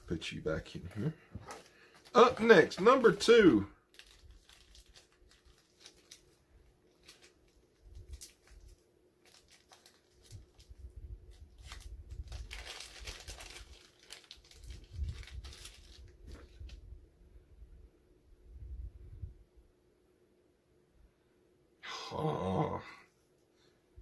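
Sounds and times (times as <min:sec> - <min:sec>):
packaging rustling and crinkling: 0:00.6 - 0:16.8.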